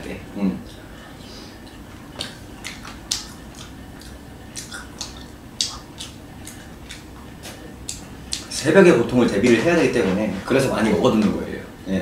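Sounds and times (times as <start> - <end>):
person chewing and lip-smacking: 1.6 - 8.6.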